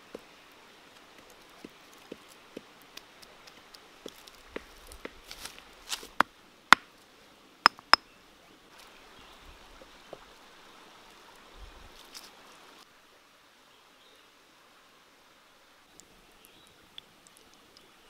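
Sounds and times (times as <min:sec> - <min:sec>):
running water hiss: 0:00.0 - 0:18.0
clay cookware knocking: 0:07.7 - 0:08.0.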